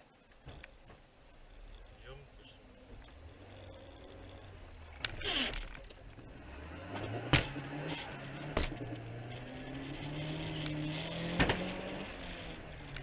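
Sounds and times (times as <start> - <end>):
car engine accelerating: 2.8 - 13.0.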